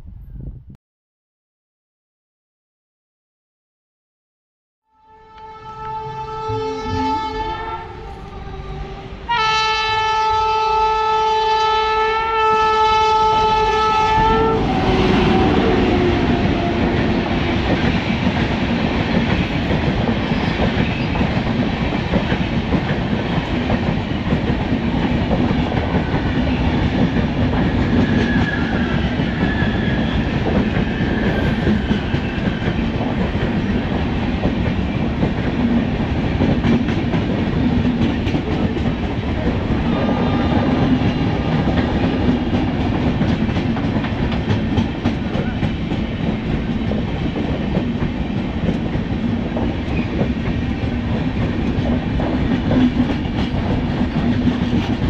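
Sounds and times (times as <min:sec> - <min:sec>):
train horn blast: 0:04.9 - 0:17.7, 0:39.8 - 0:41.7
train coaches rumbling and rattling: 0:13.1 - 0:55.0.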